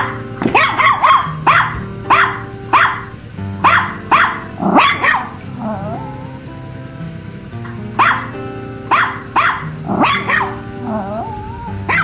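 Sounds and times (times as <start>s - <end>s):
puppy barking in high yips: 0.0s - 6.2s, 8.0s - 8.3s, 8.9s - 12.0s
background music with held notes: 0.0s - 12.0s.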